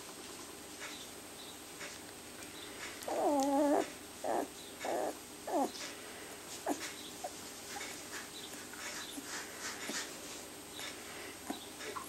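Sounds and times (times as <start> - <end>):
puppy whimpering: 3.0 - 5.9
puppy squeaks: 3.1 - 5.8.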